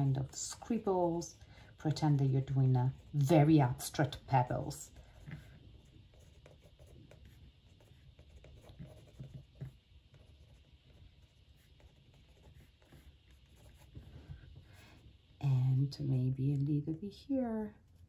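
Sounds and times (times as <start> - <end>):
pen scratching on paper: 1.8 - 14.1.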